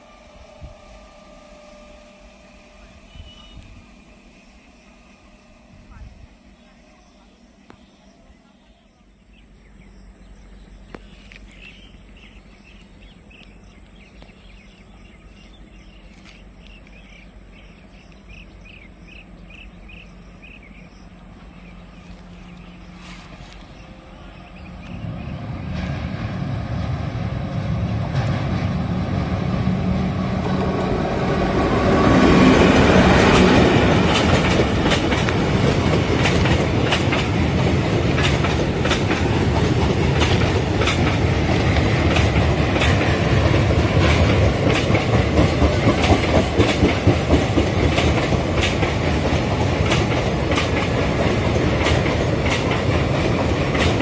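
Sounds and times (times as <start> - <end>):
train rumble on steel bridge: 0.0 - 54.0
faint chirps: 1.6 - 25.4
train wheels clattering over rail joints: 32.5 - 54.0.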